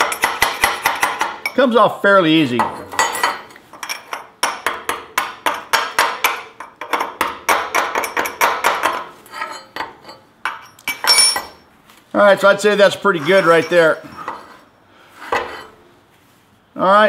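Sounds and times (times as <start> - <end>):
chisel scraping metal: 7.8 - 11.6, 13.1 - 15.9.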